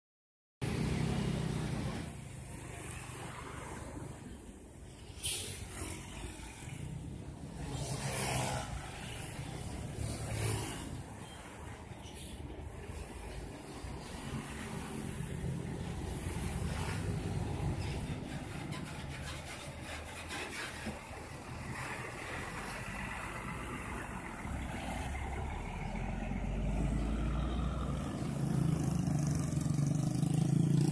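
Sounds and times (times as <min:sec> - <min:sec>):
bus diesel engine rumble: 0:11.9 - 0:29.8
motorcycle engines approaching: 0:21.0 - 0:30.9.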